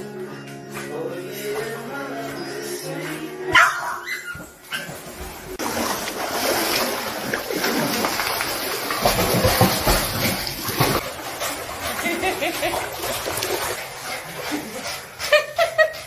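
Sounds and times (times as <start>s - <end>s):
water splashing and churning: 4.4s - 16.0s.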